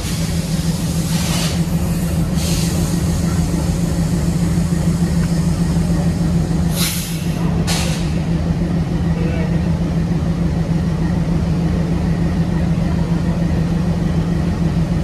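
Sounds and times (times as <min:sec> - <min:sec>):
diesel locomotive idling: 0:00.0 - 0:15.0
short hisses: 0:06.7 - 0:08.2.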